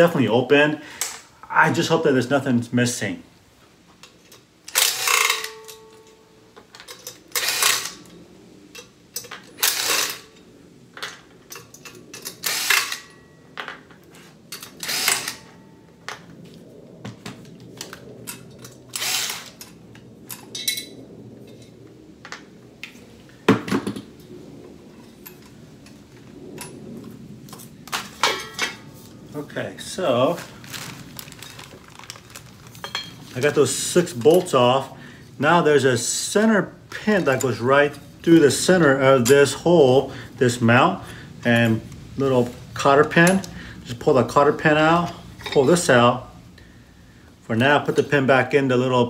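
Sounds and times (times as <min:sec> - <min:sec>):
cordless drill backing out screws: 0:07.4 - 0:08.0, 0:14.6 - 0:15.4, 0:19.0 - 0:19.6.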